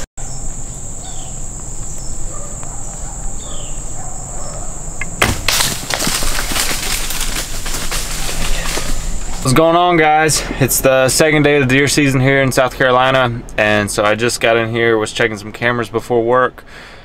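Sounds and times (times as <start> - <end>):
rustling crackling noise: 5.0 - 10.4.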